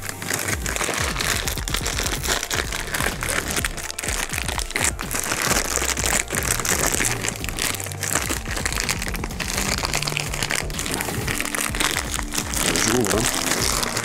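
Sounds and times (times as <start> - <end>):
packaging crinkling and rustling: 0.0 - 14.0.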